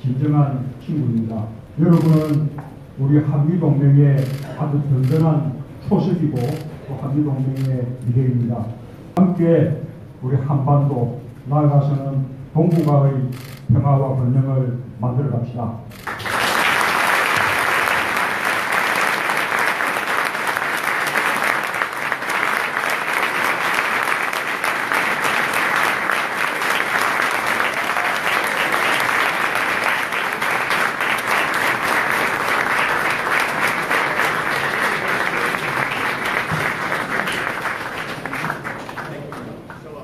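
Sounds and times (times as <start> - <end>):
crowd applauding: 16.0 - 40.0.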